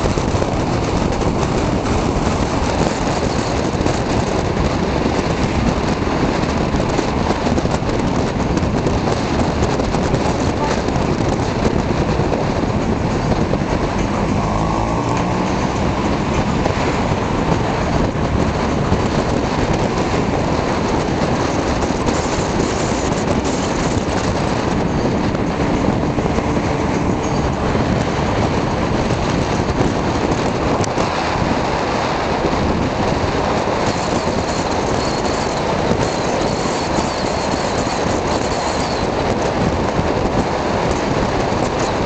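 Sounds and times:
faint engine hum: 0.0s - 31.7s
road noise inside moving car: 0.0s - 42.0s.

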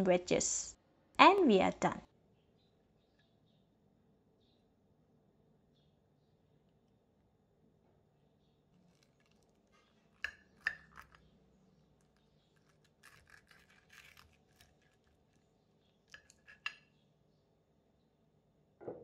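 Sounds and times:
knife sawing through fried batter: 12.6s - 15.1s.

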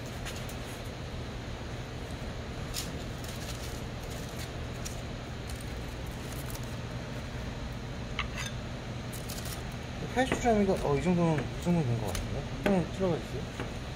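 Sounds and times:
steady low hum: 0.0s - 13.9s
aluminium foil crinkling: 2.6s - 7.2s, 9.1s - 11.0s.

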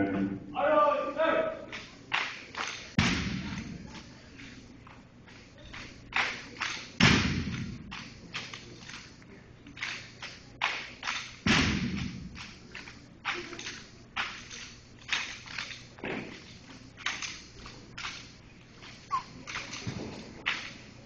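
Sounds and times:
hands slapping rifles: 1.7s - 3.7s, 5.3s - 9.2s, 9.8s - 15.8s.

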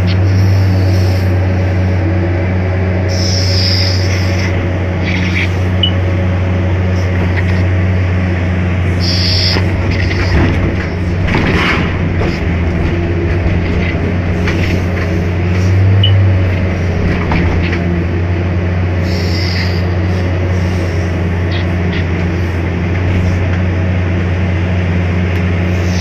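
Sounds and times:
diesel engine droning: 0.0s - 26.0s
rock and dirt clattering: 8.9s - 18.2s.

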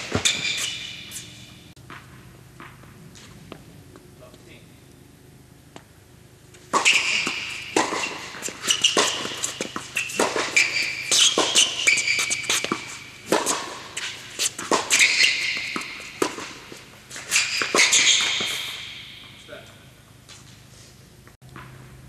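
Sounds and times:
ball bouncing on court: 0.0s - 0.9s, 6.6s - 16.9s
sneaker squeaks: 0.0s - 1.7s, 6.5s - 20.7s
tennis ball off racket strings: 6.5s - 19.5s.

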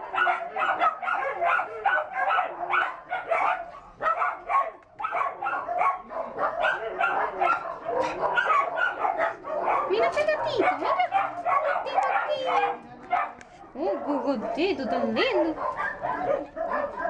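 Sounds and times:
dogs barking: 0.0s - 17.0s.

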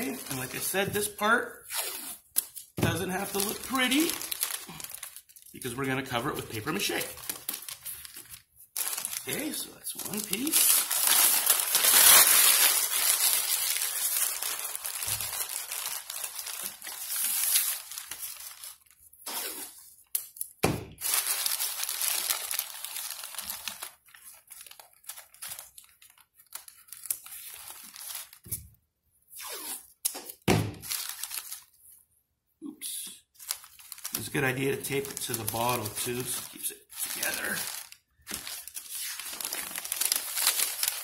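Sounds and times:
tape tearing from roll: 1.6s - 2.7s, 19.2s - 20.3s, 29.3s - 31.6s
newspaper being crumpled: 2.4s - 19.1s, 21.0s - 28.5s, 30.8s - 31.8s, 33.3s - 41.0s.

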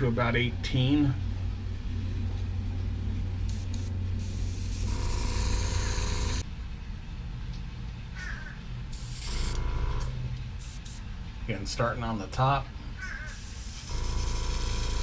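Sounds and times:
steady low hum: 0.0s - 15.0s
airbrush spraying hiss: 3.5s - 5.0s, 10.6s - 11.1s, 13.3s - 14.0s.

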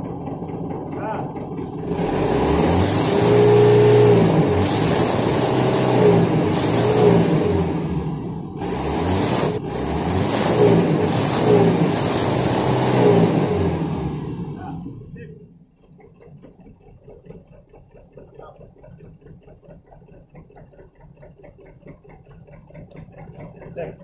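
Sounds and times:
truck engine revving: 0.0s - 24.0s
exhaust pipe whistle: 2.0s - 7.4s, 10.2s - 13.6s.

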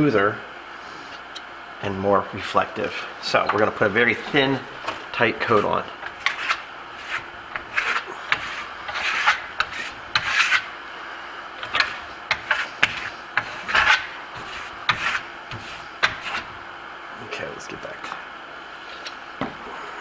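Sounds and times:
trowel scraping plaster: 3.6s - 10.7s, 11.6s - 16.5s.

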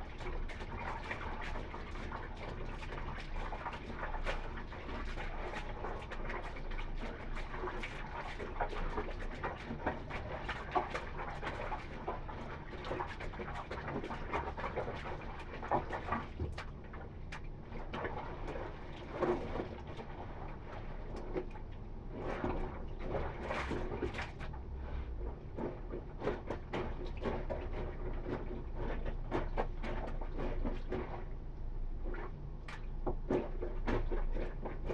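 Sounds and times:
feet squelching in soapy water: 0.0s - 16.4s, 22.2s - 24.7s.

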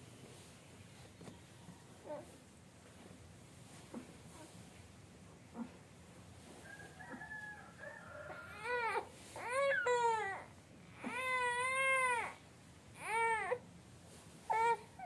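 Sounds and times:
baby crying: 8.5s - 12.4s, 13.0s - 13.6s.

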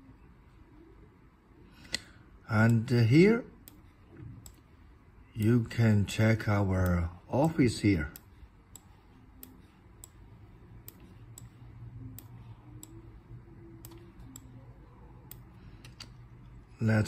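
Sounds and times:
low steady hum: 0.0s - 17.0s
computer mouse clicking: 3.6s - 4.7s, 6.8s - 10.2s, 10.8s - 13.0s, 13.7s - 14.6s, 15.2s - 16.2s.

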